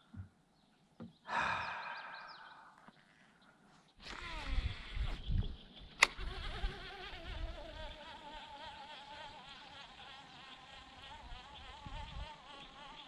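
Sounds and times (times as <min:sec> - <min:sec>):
flying insects buzzing: 0:04.0 - 0:13.0.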